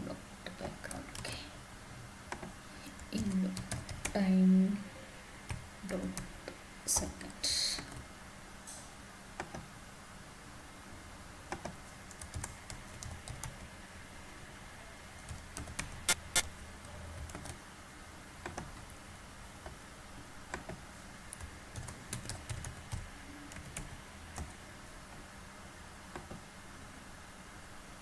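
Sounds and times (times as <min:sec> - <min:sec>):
keyboard typing: 0:00.6 - 0:01.4, 0:02.3 - 0:04.2, 0:05.5 - 0:06.4, 0:07.7 - 0:08.0, 0:11.5 - 0:13.7, 0:15.2 - 0:17.6, 0:18.4 - 0:19.0, 0:20.5 - 0:24.6
sharp keyboard clicks: 0:02.3 - 0:04.2, 0:11.5 - 0:13.6, 0:15.2 - 0:16.5, 0:17.2 - 0:17.6, 0:18.4 - 0:18.9, 0:20.5 - 0:24.6.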